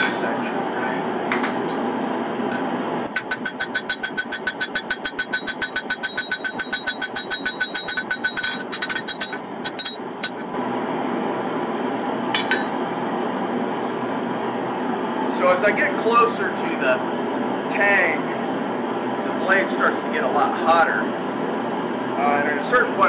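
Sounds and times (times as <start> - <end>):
shop machinery roar: 0.0 - 23.0
anvil ringing: 3.2 - 10.5, 12.4 - 12.8
hammer striking blade on anvil: 3.2 - 10.5, 12.4 - 12.8.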